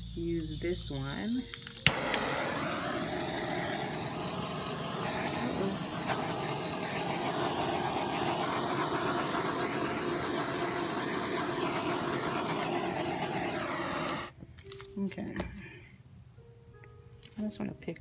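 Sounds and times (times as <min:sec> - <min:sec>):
torch flame hissing: 0:00.4 - 0:14.3.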